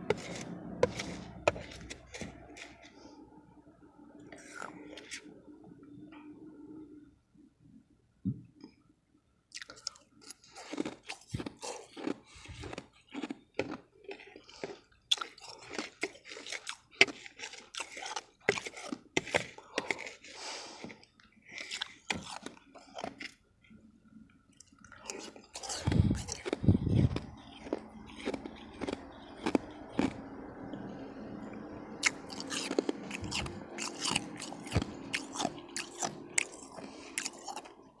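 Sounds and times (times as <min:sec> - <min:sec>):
ice being chewed: 0:00.0 - 0:03.0, 0:09.5 - 0:23.8, 0:24.5 - 0:30.8, 0:31.5 - 0:38.0
faint low hum: 0:00.0 - 0:38.0.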